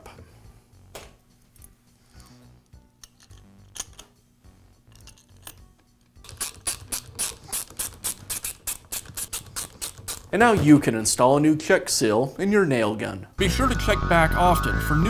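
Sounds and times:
faint clicks of parts: 2.6 - 4.2
screwdriver ratchet clicking: 6.2 - 10.3.

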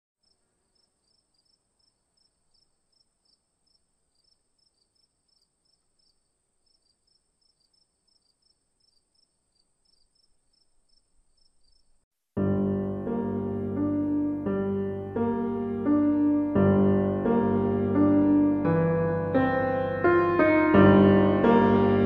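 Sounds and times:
faint insect chirping: 0.2 - 12.1.

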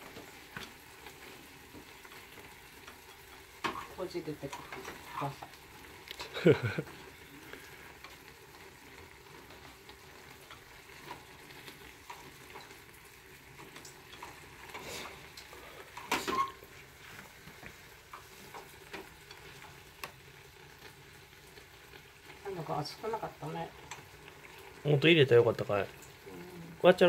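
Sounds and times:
onion and egg frying in a pan: 0.0 - 27.0
chopsticks clicking and scraping pan: 0.1 - 12.9, 13.6 - 16.5, 17.6 - 20.2, 23.8 - 24.8.

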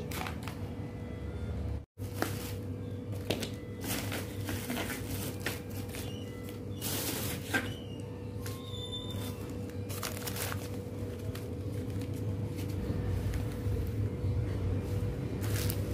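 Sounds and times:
plastic sachets dropping into basket: 0.0 - 0.7, 9.3 - 12.8
low steady hum: 0.0 - 15.9.

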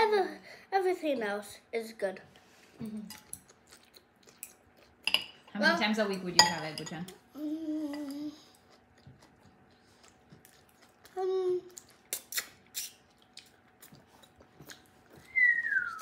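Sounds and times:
child humming: 7.4 - 8.4
eating noodles clicks and smacks: 11.7 - 14.0.

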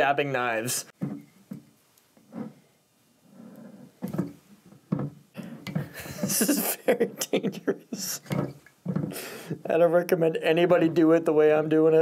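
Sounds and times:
small knocks: 1.0 - 2.6, 4.0 - 6.5, 8.3 - 9.2.

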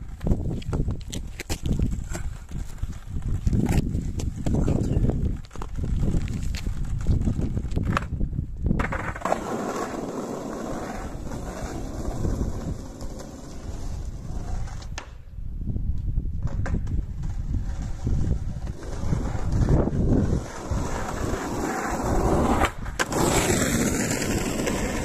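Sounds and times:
skateboard landing: 0.0 - 15.3, 16.3 - 25.0
skateboard wheels rolling on tarmac: 0.0 - 25.0
wind rumble on microphone: 0.0 - 25.0.

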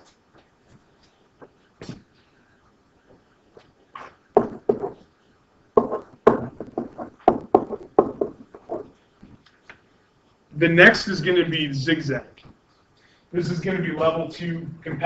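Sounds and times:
stylus tapping and scratching on screen: 0.0 - 10.4.

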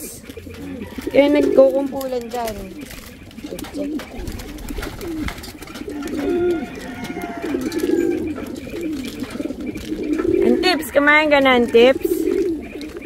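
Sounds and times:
pigeons cooing: 0.0 - 13.0.

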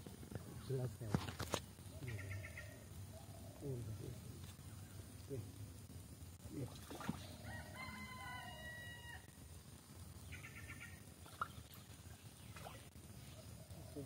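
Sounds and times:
rooster crowing: 7.4 - 9.3.

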